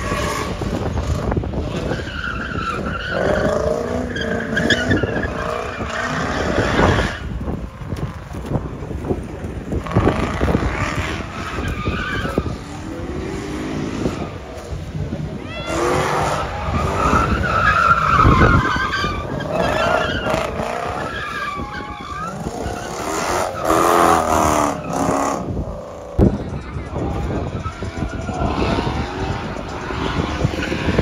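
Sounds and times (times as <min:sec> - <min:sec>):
tyres skidding and squealing: 0:00.0 - 0:31.0
car engine revving: 0:09.6 - 0:31.0.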